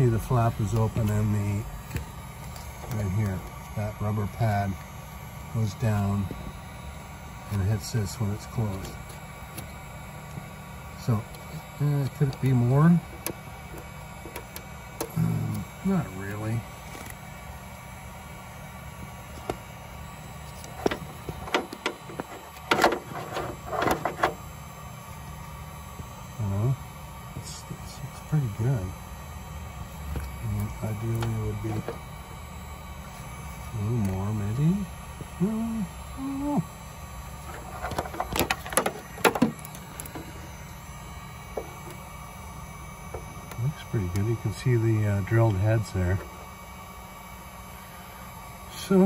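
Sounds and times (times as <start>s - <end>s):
steady low hum: 0.0s - 49.0s
short voiced hum: 15.1s - 16.1s, 33.8s - 36.8s
sharp clicks and knocks: 20.6s - 24.4s, 37.5s - 40.3s.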